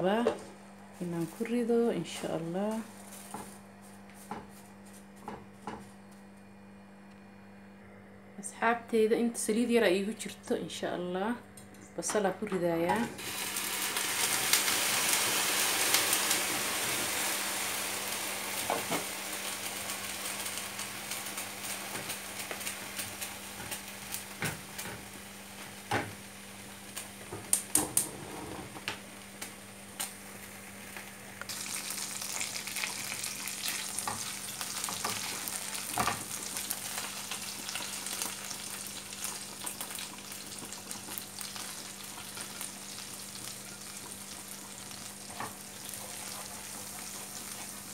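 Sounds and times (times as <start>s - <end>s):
onions sizzling in hot oil: 13.2s - 28.3s, 28.9s - 47.9s.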